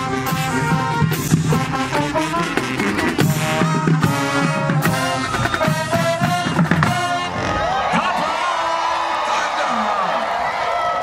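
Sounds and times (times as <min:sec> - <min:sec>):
drumline beat: 0:00.0 - 0:08.4
brass horns and saxophones: 0:00.0 - 0:08.9.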